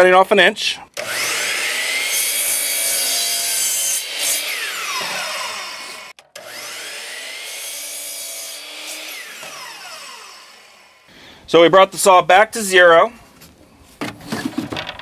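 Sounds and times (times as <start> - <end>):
miter saw cutting wood: 1.0 - 11.1
saw blade winding down: 1.0 - 11.1.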